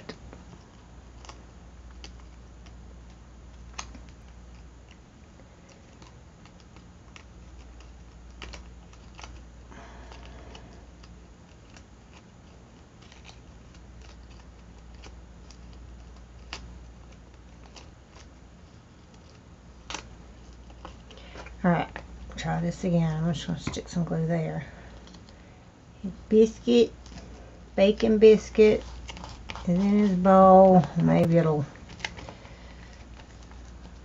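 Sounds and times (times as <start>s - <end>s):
faint low hum: 0.0s - 34.0s
paper rustle: 5.5s - 22.1s, 27.0s - 34.0s.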